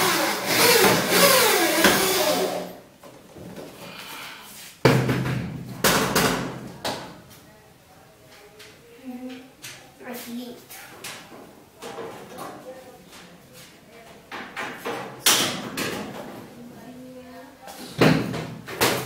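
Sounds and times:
electric drill driving screw: 0:00.0 - 0:02.7.

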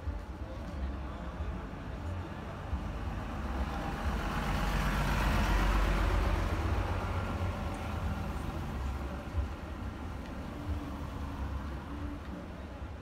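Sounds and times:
truck driving past: 0:03.2 - 0:09.2
car driving past: 0:03.4 - 0:09.0.

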